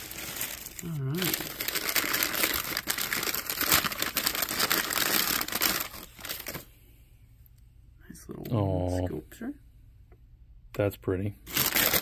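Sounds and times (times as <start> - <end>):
packing paper crinkling: 0.0 - 6.7, 11.5 - 12.0.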